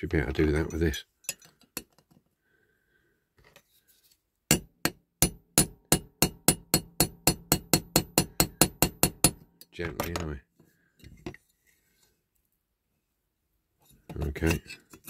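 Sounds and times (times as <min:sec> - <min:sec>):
hammer tapping metal punch: 0:04.5 - 0:09.4.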